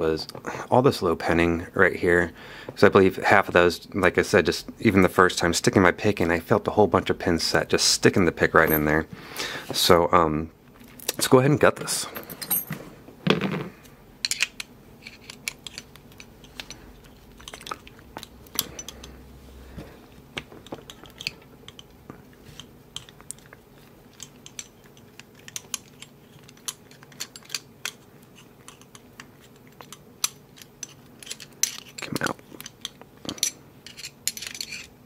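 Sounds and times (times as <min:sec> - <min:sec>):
small metallic clicks and scrapes: 0:14.2 - 0:19.2, 0:20.4 - 0:35.0.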